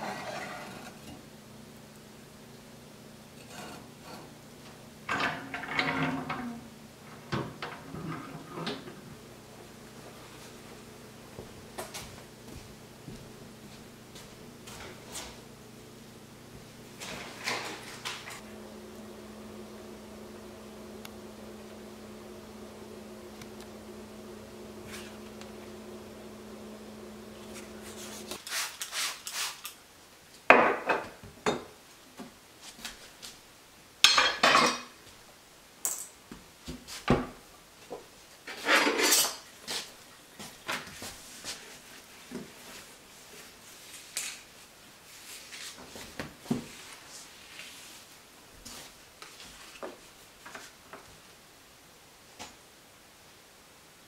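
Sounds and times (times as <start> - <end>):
steady hum: 0.0 - 28.4
pots and dishes clattering: 5.1 - 9.0, 34.0 - 35.0, 38.5 - 39.5.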